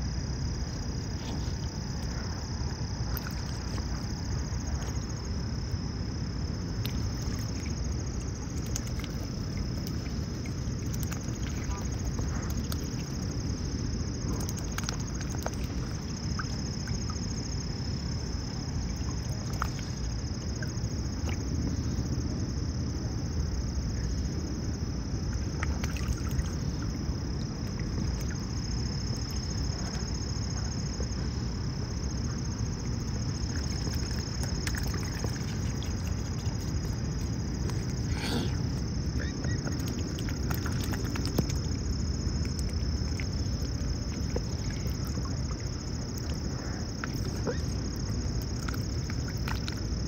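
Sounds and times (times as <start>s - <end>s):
steady outdoor rumble: 0.0s - 50.0s
small splashes and clicks: 3.0s - 5.1s, 6.8s - 17.5s, 18.6s - 21.6s, 25.3s - 30.2s, 32.2s - 38.1s, 39.2s - 50.0s
swan dabbling bill in water: 3.0s - 5.4s, 6.8s - 21.8s, 25.3s - 31.4s, 32.0s - 50.0s.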